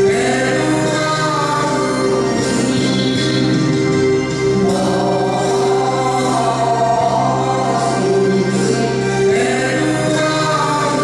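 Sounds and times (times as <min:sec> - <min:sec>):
instrumental accompaniment: 0:00.0 - 0:11.0.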